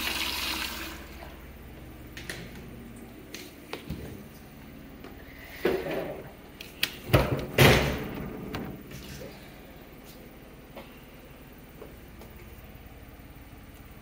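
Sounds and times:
stall door knocks and bangs: 7.1 - 8.8.

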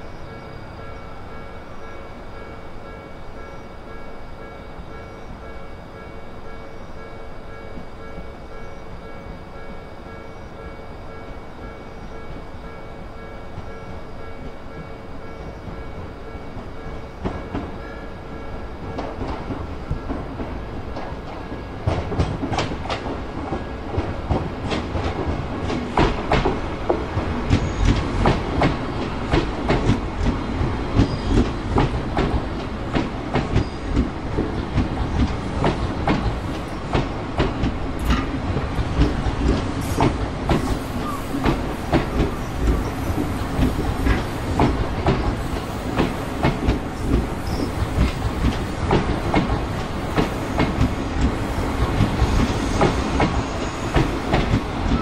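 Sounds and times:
train wheels clacking over rail joints: 18.8 - 55.0.

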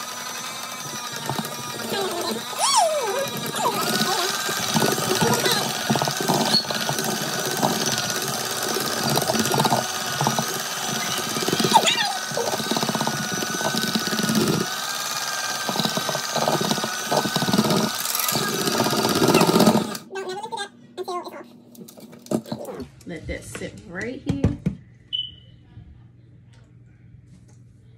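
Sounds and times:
beaters rattling in bowl: 0.0 - 20.0
electric mixer whine: 0.0 - 20.1.

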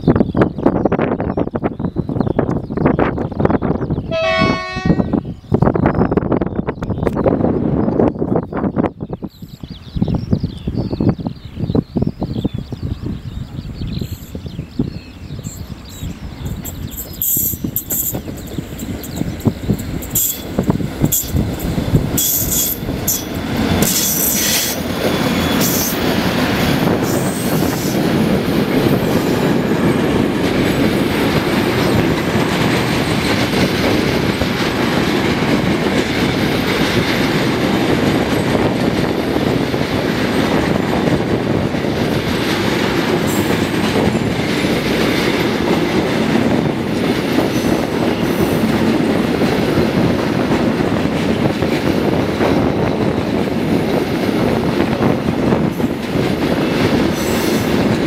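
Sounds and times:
train wheels on rails: 11.8 - 58.0
locomotives passing: 13.0 - 58.0.

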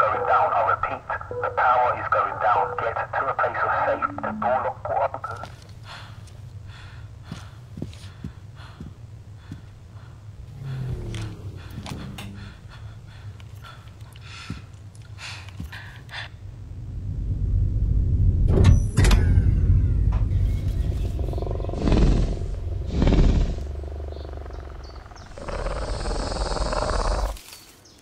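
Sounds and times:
deep rumble: 5.6 - 27.4
loud hissing roar: 10.4 - 12.7, 20.9 - 27.4
heavy swells: 16.2 - 27.4.

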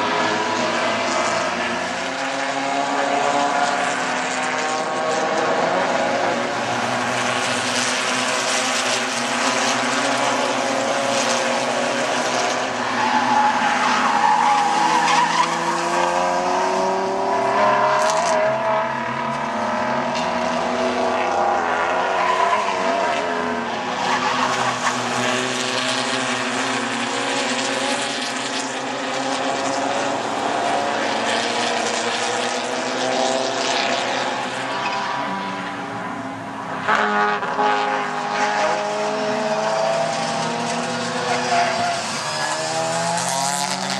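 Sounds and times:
racing car engines: 0.0 - 43.9
tyres squealing and skidding: 12.4 - 16.4, 22.0 - 25.5, 34.5 - 36.2, 40.2 - 43.2.

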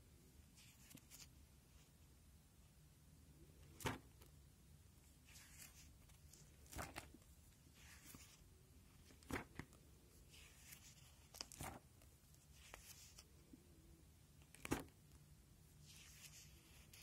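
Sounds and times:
plastic sheets crinkling: 5.3 - 8.4, 9.0 - 13.3.

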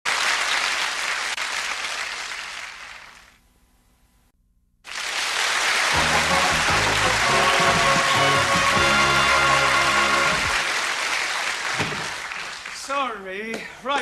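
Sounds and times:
audience applauding: 0.1 - 3.4, 4.9 - 13.2
music: 5.9 - 10.8.

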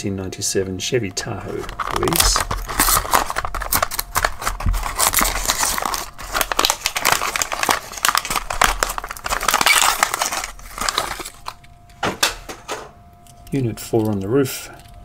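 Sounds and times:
plastic packaging crinkling: 1.2 - 11.8.

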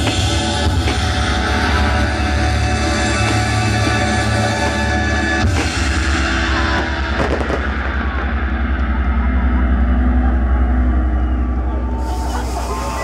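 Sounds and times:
loud rock music: 0.0 - 13.0
fireworks bangs: 3.0 - 8.4.

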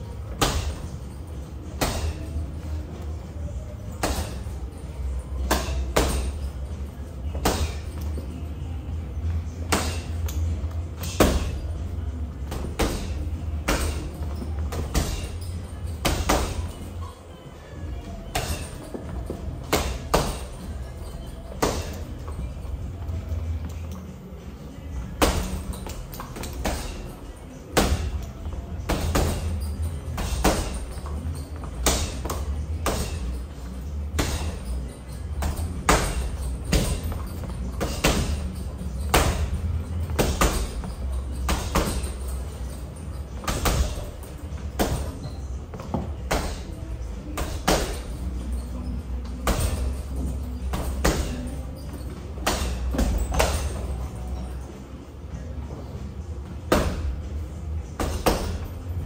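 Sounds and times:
steady low hum: 0.0 - 59.0
boxing gloves smacking a ball: 0.3 - 0.9, 5.4 - 6.5, 7.3 - 8.1, 9.6 - 11.7, 12.5 - 16.8, 19.6 - 20.6, 27.8 - 33.4, 35.4 - 42.3, 43.4 - 46.7, 47.4 - 48.3, 49.4 - 50.0, 52.4 - 54.0.

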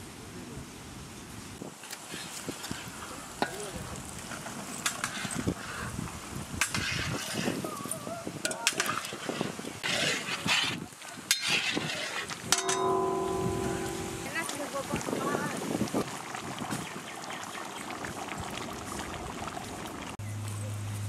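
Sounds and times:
metal ladle scraping a pan: 4.3 - 5.9, 6.6 - 7.6, 8.5 - 14.7
steady held tone: 12.5 - 14.7.

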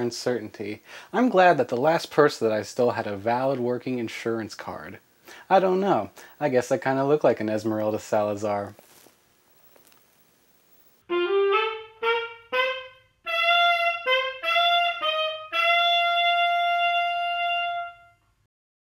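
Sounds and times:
wind instrument melody: 11.0 - 18.2.

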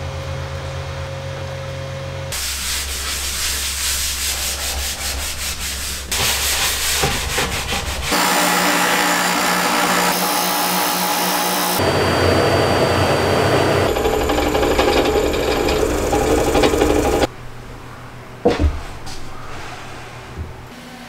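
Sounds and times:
disc sander sanding plywood: 2.4 - 17.3.

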